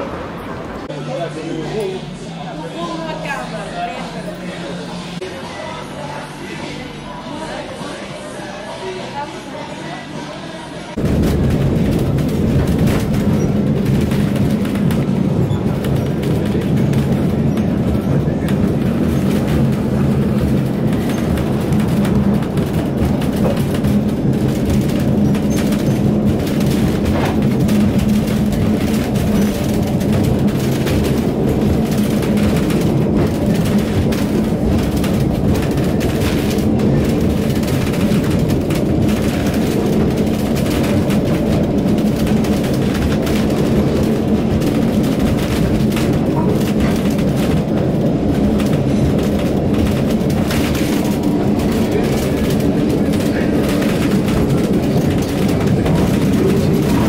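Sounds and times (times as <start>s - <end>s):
tram rumbling on rails: 0.0s - 57.0s
tram rattles and clicks: 10.9s - 57.0s.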